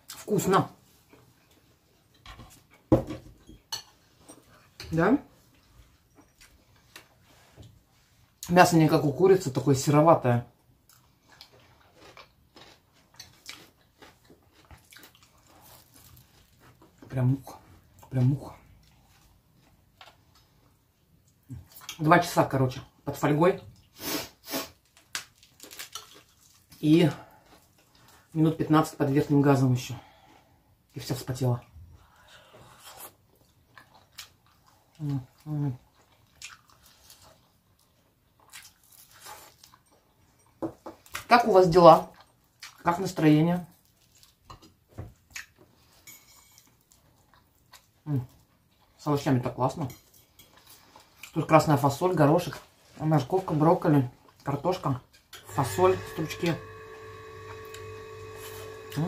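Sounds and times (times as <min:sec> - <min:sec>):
wet chewing and mouth smacking: 0:10.8 - 0:17.0, 0:18.8 - 0:22.0, 0:24.8 - 0:26.8, 0:32.7 - 0:41.3, 0:42.1 - 0:42.9, 0:43.6 - 0:46.0, 0:46.6 - 0:49.0.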